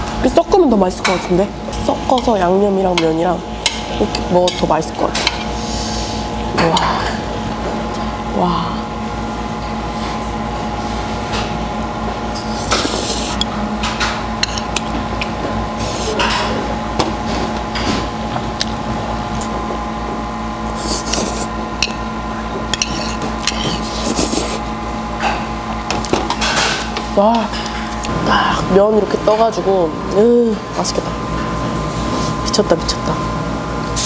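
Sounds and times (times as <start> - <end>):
steady hum: 0.0 - 34.0
noodles slurped: 12.3 - 13.5, 20.7 - 21.6, 22.8 - 24.7.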